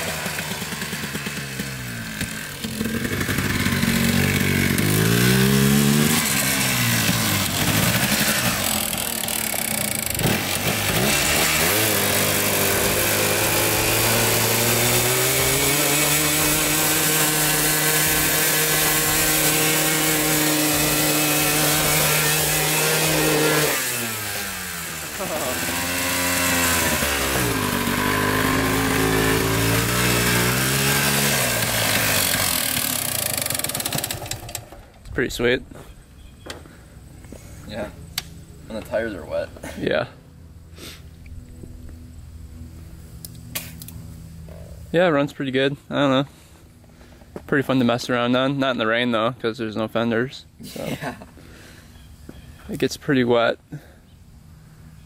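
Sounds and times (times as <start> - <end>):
atv engine revving hard: 0.0 - 34.8.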